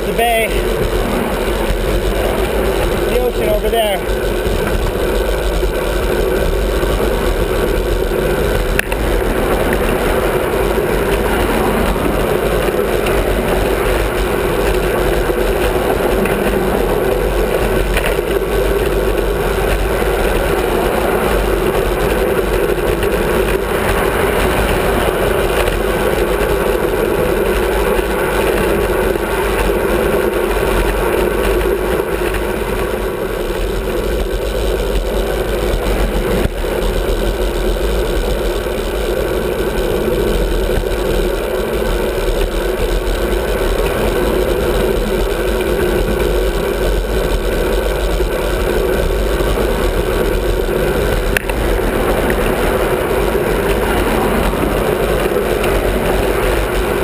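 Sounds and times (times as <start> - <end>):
car passing: 0.0 - 27.3
wind rushing: 0.0 - 27.3
bicycle road noise: 0.0 - 57.0.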